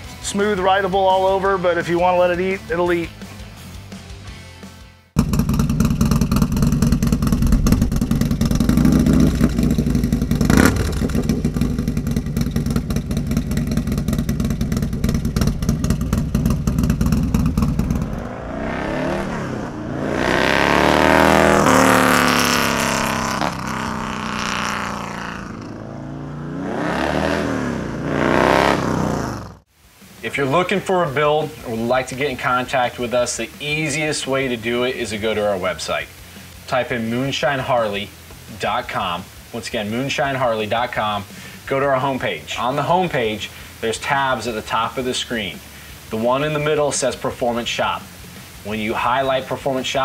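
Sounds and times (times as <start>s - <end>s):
motorcycle engine revving: 5.1s - 29.7s.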